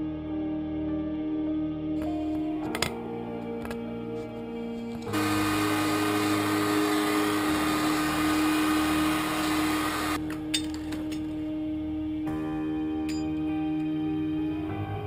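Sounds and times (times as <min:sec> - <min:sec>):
background music with held tone: 0:00.0 - 0:15.0
heat gun blowing air: 0:05.1 - 0:10.2.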